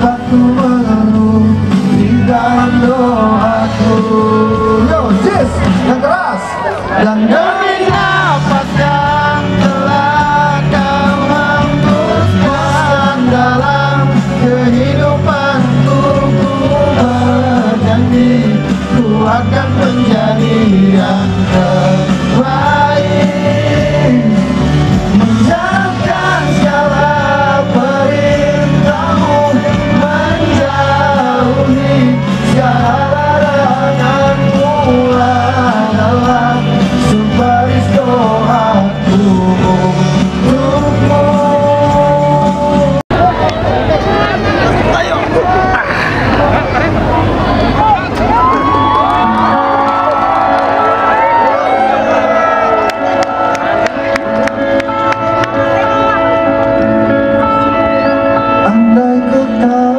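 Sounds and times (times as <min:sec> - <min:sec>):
man singing into a microphone: 0:00.0 - 0:06.0, 0:06.8 - 0:43.3, 0:58.4 - 0:59.9
music with steady bass line: 0:00.0 - 0:59.9.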